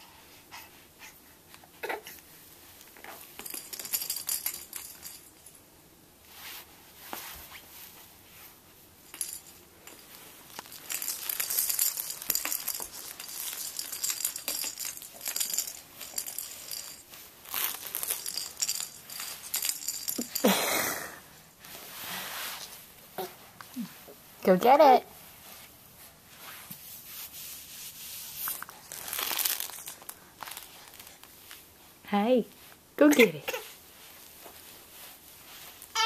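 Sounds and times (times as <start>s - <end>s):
plastic rattle toy jingling: 3.4s - 5.5s, 9.1s - 20.6s, 28.6s - 31.1s.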